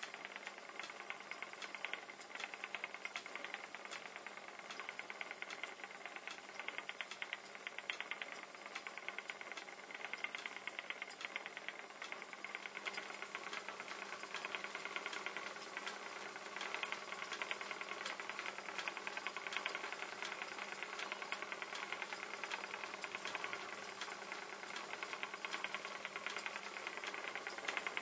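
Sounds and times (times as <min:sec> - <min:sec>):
spinning wheel clicking rattle: 0:00.0 - 0:28.0.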